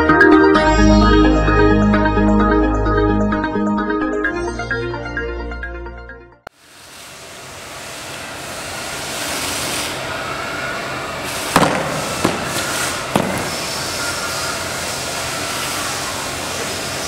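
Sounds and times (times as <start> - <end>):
steady background noise: 6.6 - 17.0.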